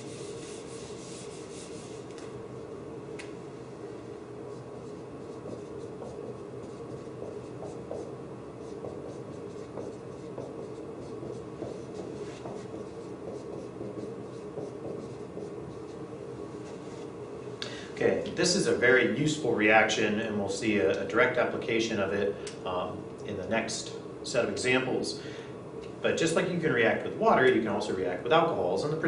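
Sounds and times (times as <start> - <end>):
marker writing on whiteboard: 0.0 - 2.0, 4.5 - 16.1
steady background hum: 0.0 - 29.0.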